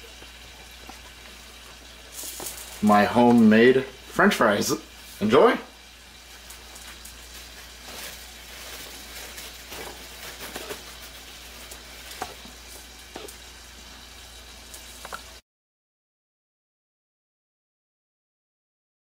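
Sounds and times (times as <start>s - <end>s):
faint crackling hiss: 0.0s - 5.4s
potato wedges rustling on paper: 0.1s - 3.5s, 6.3s - 13.4s.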